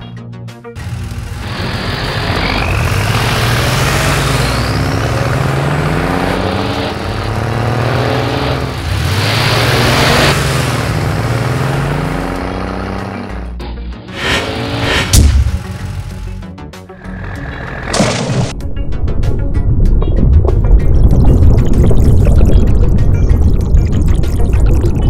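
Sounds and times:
background music: 0.0 - 1.2, 9.7 - 25.0
engine revving: 0.8 - 18.5.

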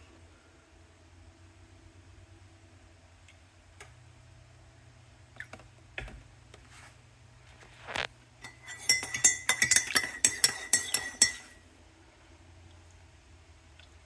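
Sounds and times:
spoon clinking in ceramic mug: 8.4 - 11.6.

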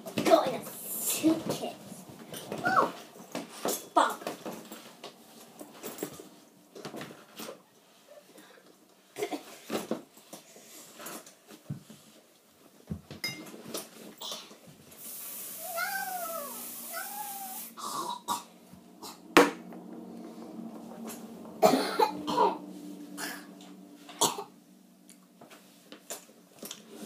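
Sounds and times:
hiss: 14.9 - 18.0
meow-like calls: 15.6 - 17.7.

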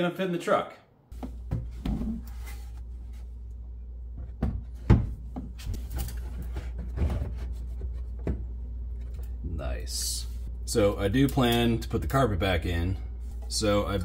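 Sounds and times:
steady low hum: 1.1 - 14.0
plastic knocks and scrapes: 4.2 - 9.1.

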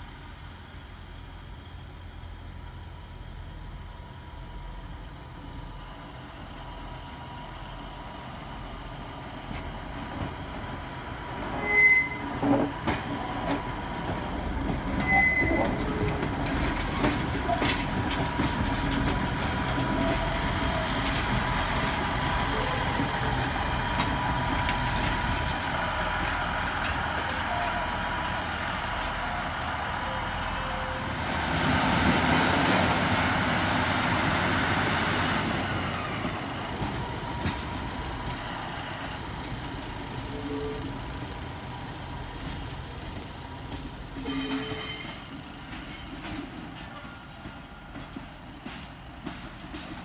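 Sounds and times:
diesel train rumbling past: 0.0 - 50.0
high-pitched squeals: 11.6 - 12.6, 15.0 - 16.3.

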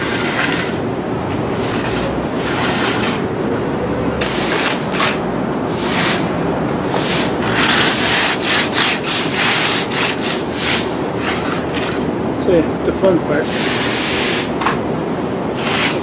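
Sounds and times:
trowel scraping wet concrete: 0.0 - 0.9, 1.5 - 3.3, 4.2 - 6.3, 6.9 - 12.1, 15.6 - 16.0.

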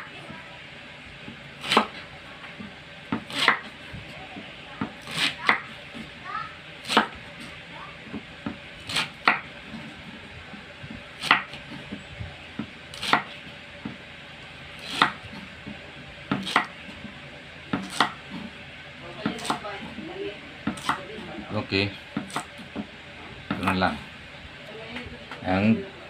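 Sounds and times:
knife chopping on wooden board: 1.6 - 2.0, 3.1 - 3.8, 6.8 - 7.2, 8.1 - 9.9, 11.2 - 11.9, 12.6 - 14.0, 14.8 - 16.8, 17.7 - 18.5, 19.2 - 20.0, 20.6 - 21.0, 22.1 - 22.9, 23.5 - 23.9.

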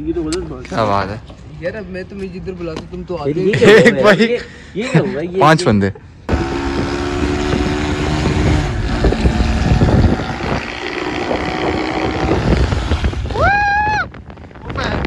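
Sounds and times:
motorcycle engine rumble: 6.2 - 15.0
wind buffeting microphone: 6.3 - 15.0.

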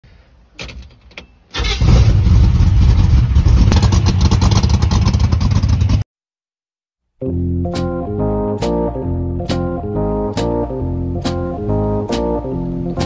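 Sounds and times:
engine cranking: 1.5 - 6.0.

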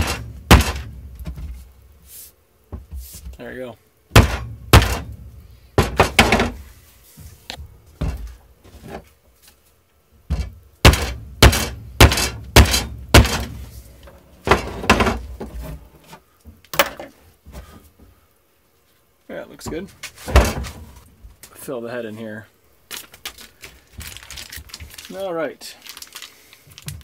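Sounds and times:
handle knocked into sledgehammer head: 0.0 - 0.9, 4.2 - 5.1.

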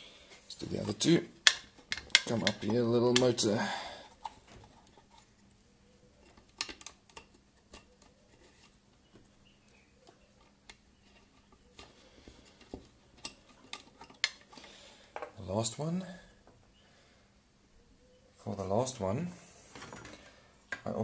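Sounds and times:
small parts clicking on plastic housing: 1.4 - 3.4, 6.2 - 8.2, 12.6 - 14.6.

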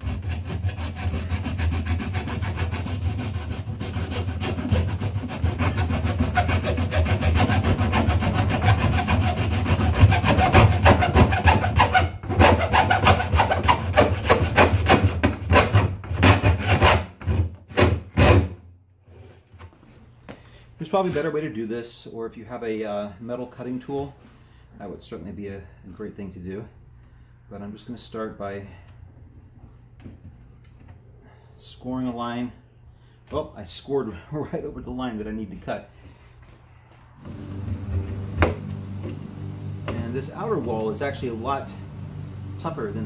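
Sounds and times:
hacksaw sawing metal and plastic: 0.0 - 18.5.

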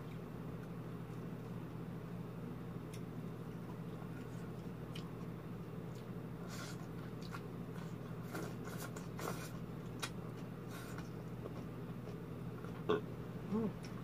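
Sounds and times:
steady low hum: 0.0 - 14.0
wet chewing and slurping: 5.9 - 12.8.

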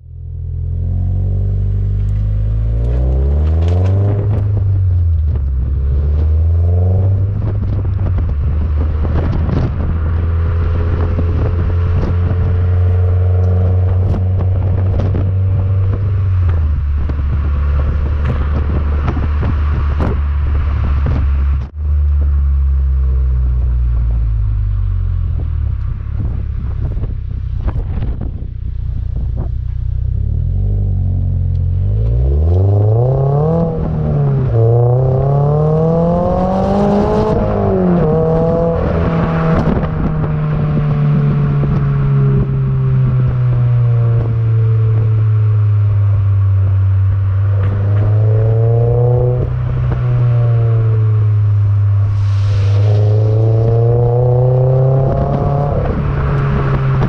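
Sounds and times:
car engine revving: 0.0 - 57.0
exhaust pops: 1.7 - 57.0.

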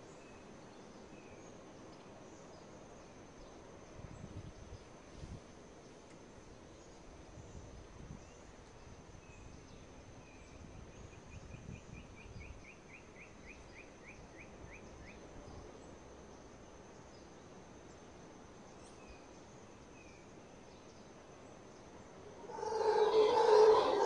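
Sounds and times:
high-pitched insect drone: 22.3 - 24.0.

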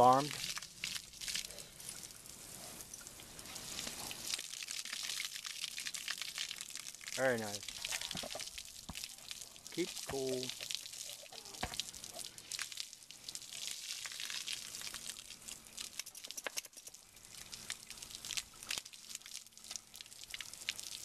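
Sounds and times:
hose water spraying: 0.0 - 5.0, 7.2 - 12.7
water splashing on wet concrete: 3.6 - 21.0.

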